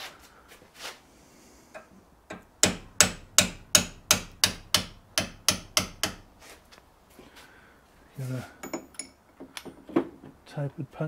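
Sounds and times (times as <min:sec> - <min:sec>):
hammer striking steel punch: 0:02.3 - 0:06.3.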